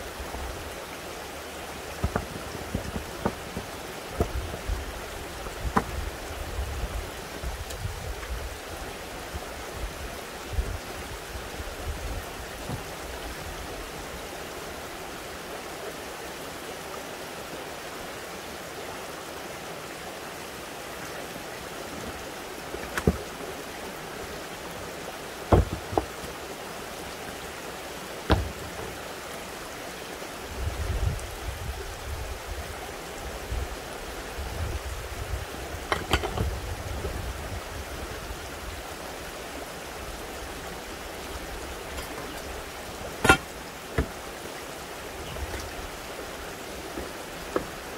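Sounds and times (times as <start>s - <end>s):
running spring water: 0.0s - 47.9s
rocks knocking together: 1.9s - 6.1s, 22.7s - 23.4s, 25.5s - 26.4s, 28.3s - 29.0s, 35.9s - 36.5s, 43.2s - 44.2s.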